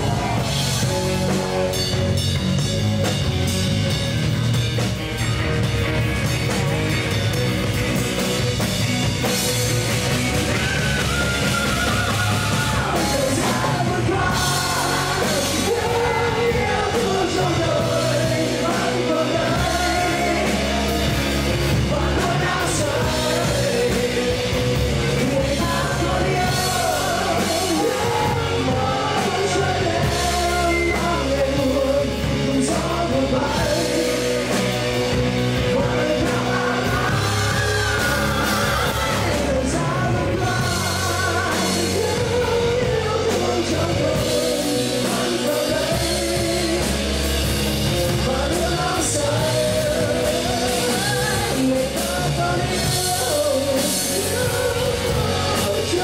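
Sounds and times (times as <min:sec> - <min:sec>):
live rock band playing: 0:00.0 - 0:56.0
man singing: 0:10.3 - 0:56.0.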